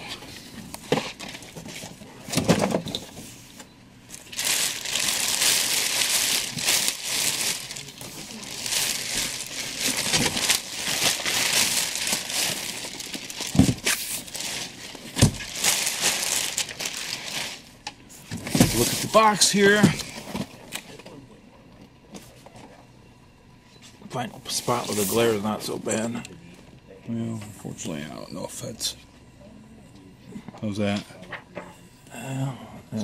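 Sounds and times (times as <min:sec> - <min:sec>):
plastic bag crinkling: 0:04.1 - 0:17.8.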